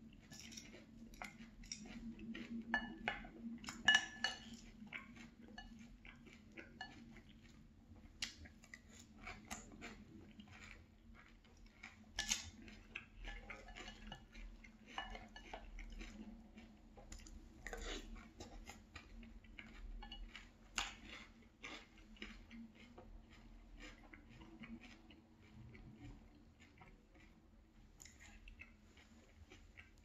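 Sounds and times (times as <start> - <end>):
crunchy chewing: 0.0 - 30.0
spoon scraping glass bowl: 20.0 - 20.3.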